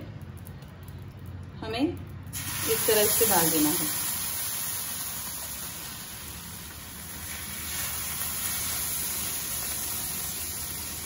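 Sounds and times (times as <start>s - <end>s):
batter sizzling on hot griddle: 2.3s - 11.0s.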